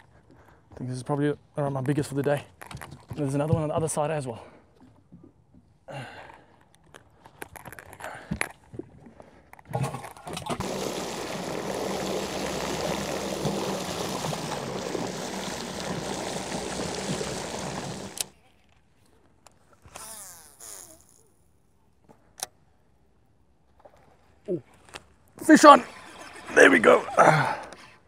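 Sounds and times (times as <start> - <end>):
electric motor hum: 10.6 - 18.3
water rushing and splashing: 10.6 - 18.3.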